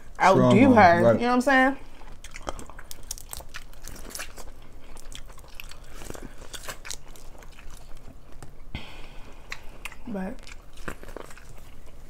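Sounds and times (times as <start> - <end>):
chewing with wet crunches: 1.8 - 8.7, 9.3 - 12.0.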